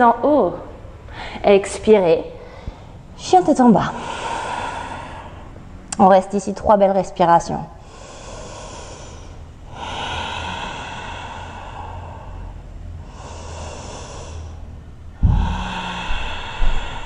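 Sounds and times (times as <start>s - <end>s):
woman breathing deeply: 1.0s - 1.5s, 2.3s - 3.2s, 3.9s - 5.8s, 7.8s - 17.0s.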